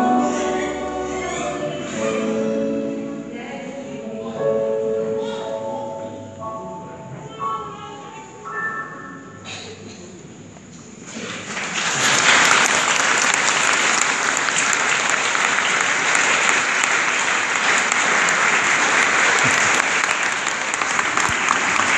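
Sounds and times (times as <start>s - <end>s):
congregation applauding: 11.1s - 21.9s.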